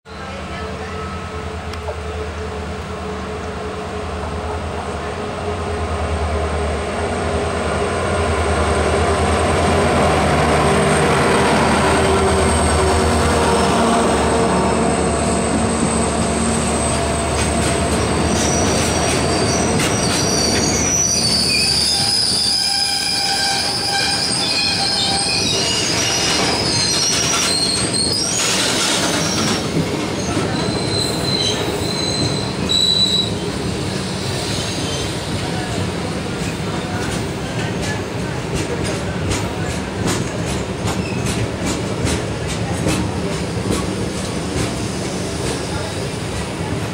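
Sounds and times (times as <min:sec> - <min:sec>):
high wheel squeals: 0:14.7 - 0:35.5.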